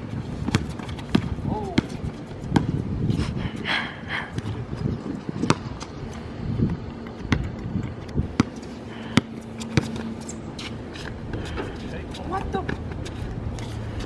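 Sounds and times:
outdoor background noise: 0.0 - 14.0
basketball bouncing on hard court: 0.4 - 2.8, 5.4 - 5.8, 7.1 - 10.1.

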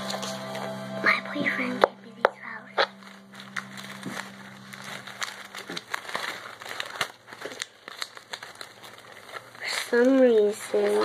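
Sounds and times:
plastic flowers rustling and crinkling: 2.5 - 11.0.

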